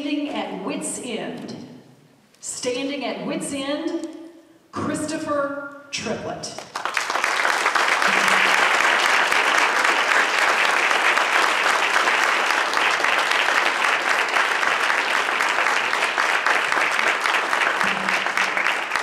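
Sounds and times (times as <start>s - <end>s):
audience applauding: 6.6s - 19.0s.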